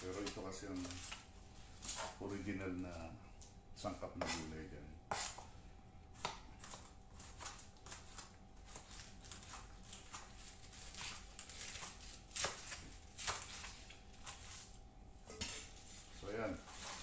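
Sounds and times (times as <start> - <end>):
knife cutting on cutting board: 5.1 - 5.5.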